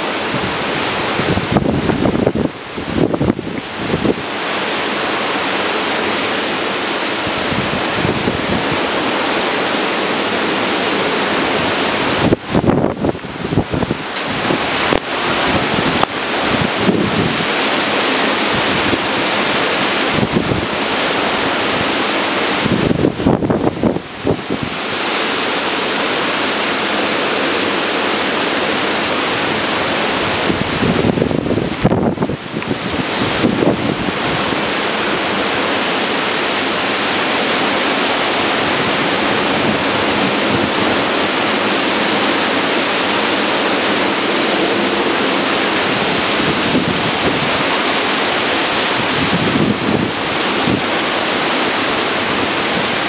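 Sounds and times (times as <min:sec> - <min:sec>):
heavy rain lashing trees: 0:00.0 - 0:53.0
high wind: 0:00.0 - 0:53.0.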